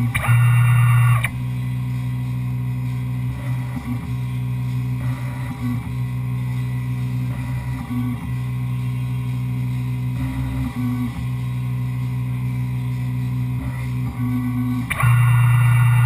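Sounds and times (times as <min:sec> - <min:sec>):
milling machine hum: 0:00.0 - 0:01.3, 0:13.6 - 0:16.0
high whine: 0:00.0 - 0:16.0.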